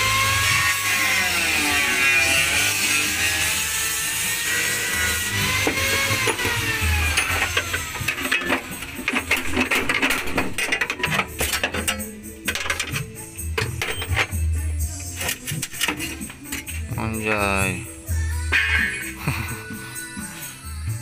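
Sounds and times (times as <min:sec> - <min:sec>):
metallic taps and scrapes on steel: 0:07.2 - 0:14.4, 0:15.0 - 0:16.8.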